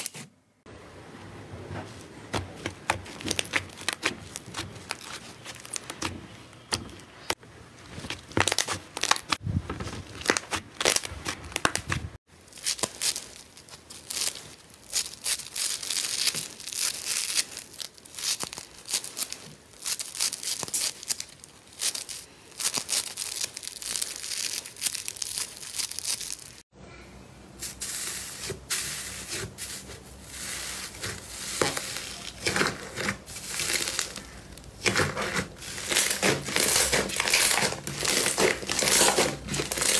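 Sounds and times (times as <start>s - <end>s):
slime crackling and popping: 2.6s - 6.8s, 8.1s - 9.4s, 10.0s - 26.6s, 30.9s - 39.9s.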